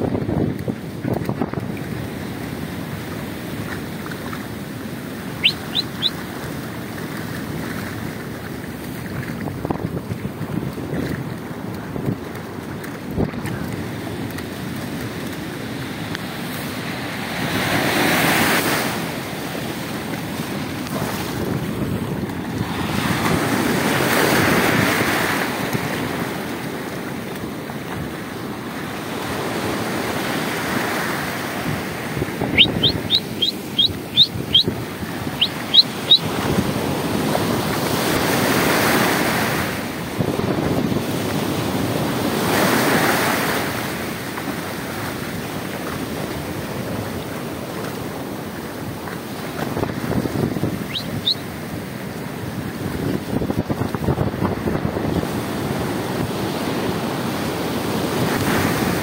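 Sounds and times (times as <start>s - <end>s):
surf washing onto beach: 0.0s - 59.0s
wind on microphone: 0.0s - 59.0s
short high chirps: 5.4s - 6.2s, 32.5s - 34.8s, 35.4s - 36.2s, 50.9s - 51.4s.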